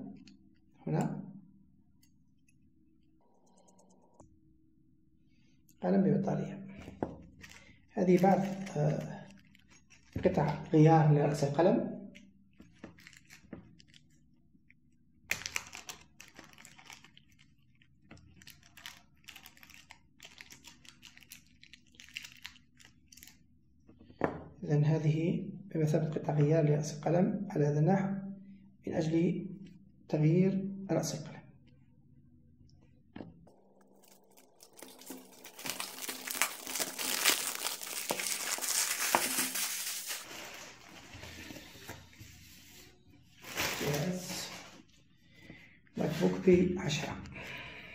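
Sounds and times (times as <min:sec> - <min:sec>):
plastic bag crinkling: 0:07.3 - 0:10.8, 0:12.6 - 0:14.2, 0:15.3 - 0:23.4, 0:33.8 - 0:41.9, 0:43.4 - 0:44.8.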